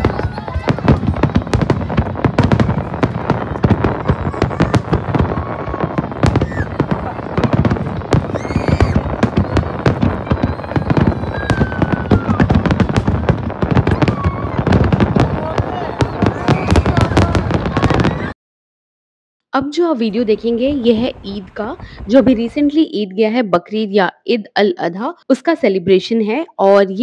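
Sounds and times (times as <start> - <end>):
firework whistles: 0.0 - 18.3
fireworks bangs and crackles: 0.0 - 18.4, 20.2 - 22.9.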